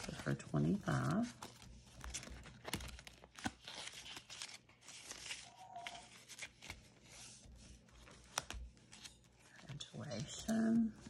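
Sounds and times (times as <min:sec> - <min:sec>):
paper banknotes rustling: 0:00.0 - 0:11.0.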